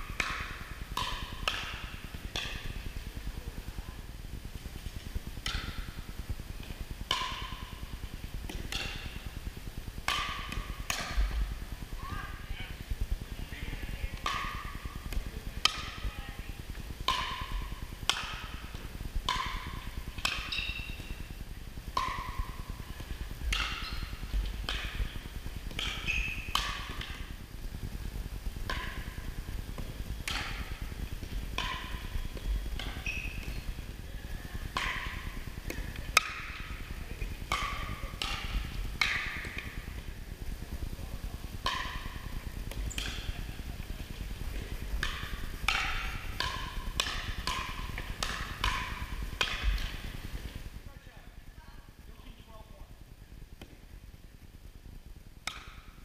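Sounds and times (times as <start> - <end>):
paddles hitting plastic ball: 10.0 - 11.4, 23.0 - 27.3, 34.6 - 40.1, 41.6 - 50.5, 55.4 - 55.9.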